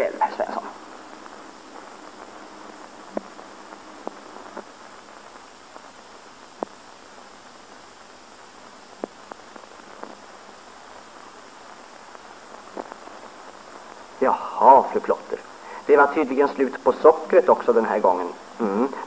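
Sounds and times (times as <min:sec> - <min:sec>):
film soundtrack hiss: 0:00.0 - 0:19.0
sharp clicks and pops: 0:01.0 - 0:07.0, 0:08.9 - 0:10.6, 0:12.1 - 0:13.3.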